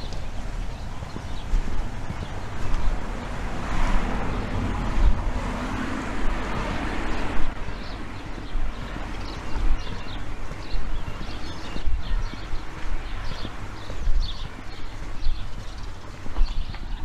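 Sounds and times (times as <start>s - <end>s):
car driving past: 2.3s - 8.2s.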